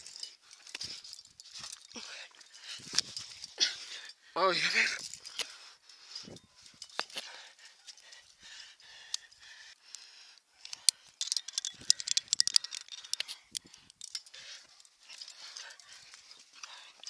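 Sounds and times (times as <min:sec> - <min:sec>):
carabiners clinking: 0:00.0 - 0:10.0, 0:10.6 - 0:17.0.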